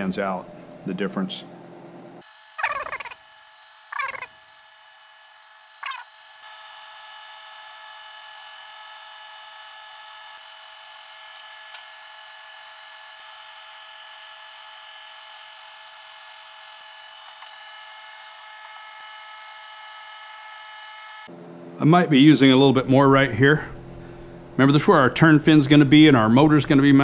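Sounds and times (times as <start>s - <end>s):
steady high whine: 18.1s - 27.0s.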